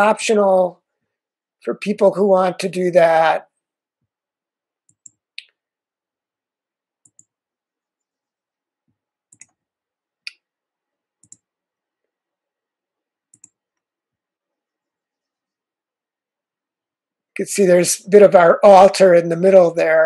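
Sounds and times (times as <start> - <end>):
computer mouse clicking: 4.8 - 5.6, 7.0 - 7.3, 9.3 - 9.6, 11.2 - 11.5, 13.3 - 13.9.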